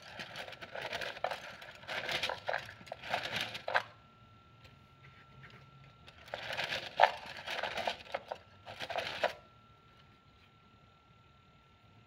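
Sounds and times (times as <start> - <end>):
wooden sticks rattling in cylinder: 0.0 - 4.0, 6.0 - 9.4.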